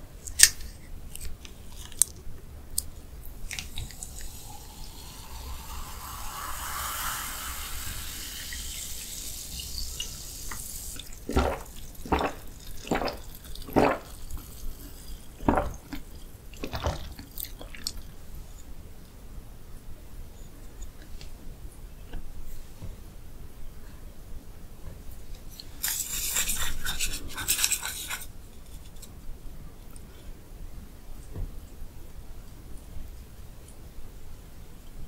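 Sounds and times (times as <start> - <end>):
sparkling water pouring into glass: 3.4 - 18.0
gulping: 11.1 - 17.9.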